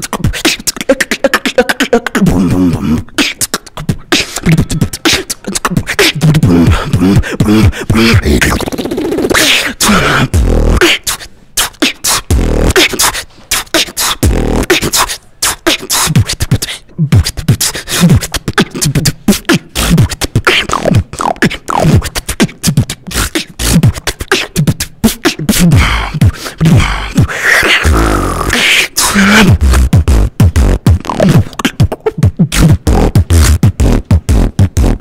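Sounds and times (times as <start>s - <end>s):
beatboxing percussive clicks: 0.0s - 35.0s
deep bass booms: 29.5s - 31.1s.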